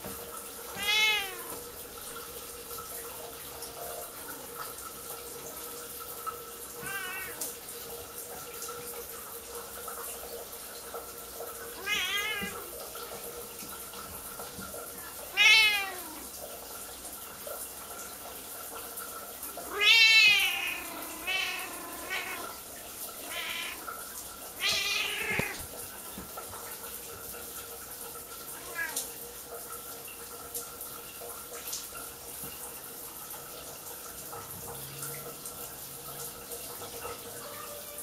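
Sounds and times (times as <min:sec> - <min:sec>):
shower running: 0:00.0 - 0:38.0
cat meowing loudly: 0:00.7 - 0:01.6, 0:06.8 - 0:07.5, 0:11.8 - 0:12.8, 0:15.0 - 0:16.3, 0:19.6 - 0:22.6, 0:23.2 - 0:23.9, 0:24.6 - 0:25.7, 0:28.6 - 0:29.1, 0:37.4 - 0:38.0.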